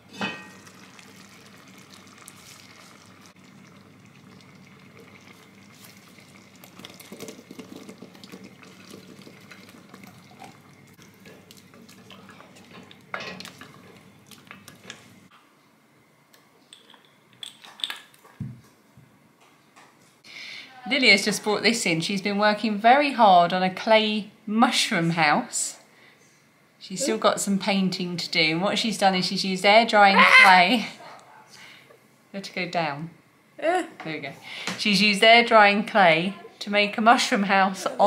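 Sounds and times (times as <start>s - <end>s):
casserole simmering and sizzling: 0.0s - 15.3s.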